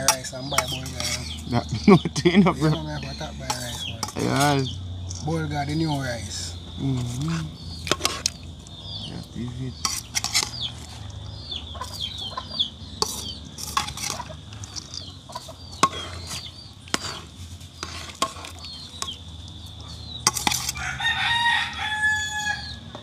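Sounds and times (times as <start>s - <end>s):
rooster crowing: 20.8s - 23.0s.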